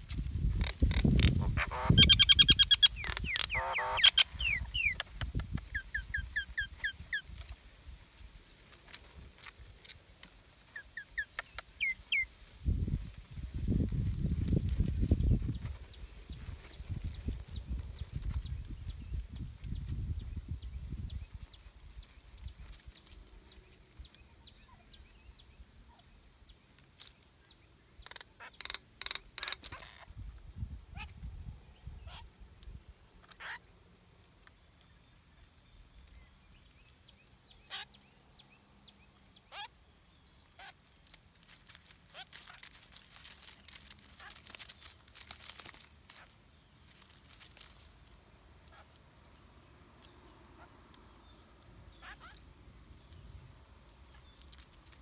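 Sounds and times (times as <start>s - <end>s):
leaves and twigs rustling: 0.0s - 37.9s, 38.5s - 55.0s
birds giving harsh rasping calls: 0.5s - 7.3s, 10.7s - 12.3s, 28.0s - 30.1s, 33.2s - 33.6s, 37.6s - 38.0s, 39.5s - 39.8s, 43.5s - 44.9s, 51.9s - 52.4s
faint rising bird calls: 1.4s - 7.3s
faint bird chirps: 1.4s - 7.5s, 10.7s - 12.4s, 14.9s - 33.8s, 34.4s - 45.0s, 45.8s - 55.0s.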